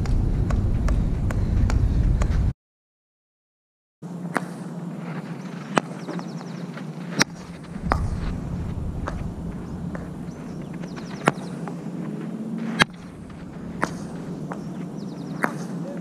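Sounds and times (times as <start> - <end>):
outdoor noise: 0.0 - 2.5, 4.0 - 16.0
steady low hum: 0.0 - 2.5, 4.0 - 16.0
hockey stick clacking ball: 12.7 - 15.8.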